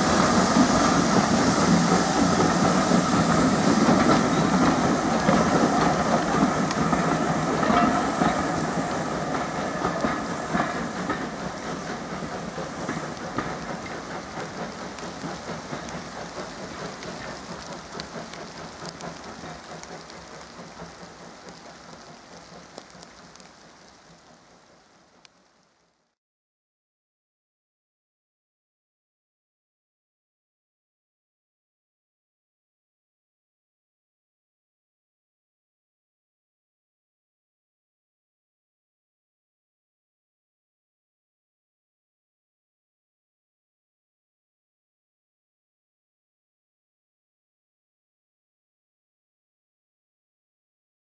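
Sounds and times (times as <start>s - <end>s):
train rolling away: 0.0s - 26.2s
wheels clicking over rail joints: 0.1s - 25.8s.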